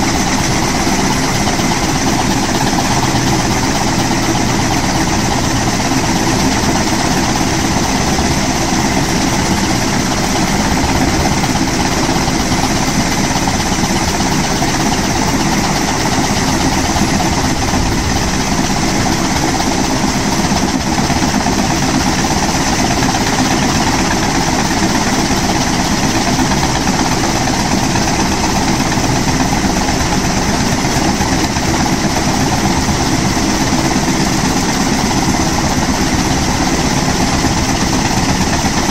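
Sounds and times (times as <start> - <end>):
helicopter engine and rotors: 0.0 - 38.9.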